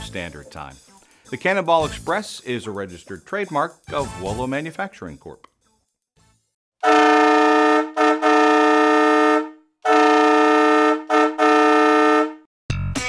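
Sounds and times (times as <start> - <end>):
air horn blowing a chord: 6.8 - 12.4.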